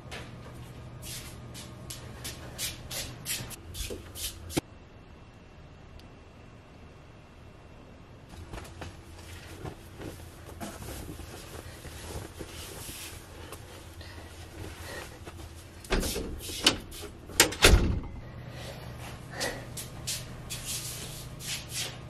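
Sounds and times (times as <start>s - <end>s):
clothes and hangers rustling: 8.3s - 17.6s.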